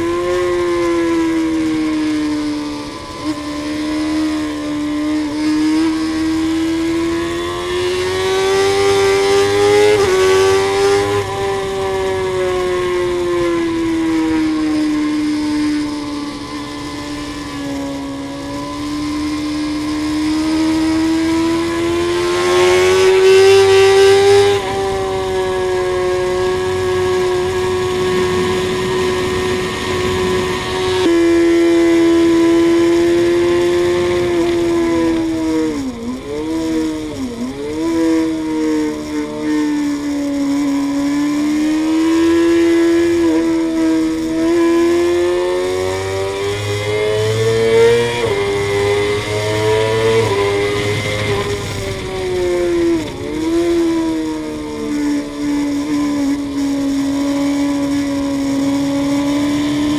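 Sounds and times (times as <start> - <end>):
sport bike engine revving: 0.0 - 59.9
wind rush: 6.6 - 38.2, 41.0 - 59.9.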